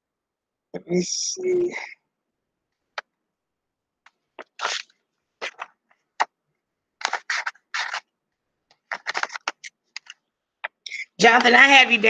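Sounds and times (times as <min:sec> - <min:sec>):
paper rustling and shuffling: 0:07.0 - 0:08.1, 0:08.7 - 0:10.2.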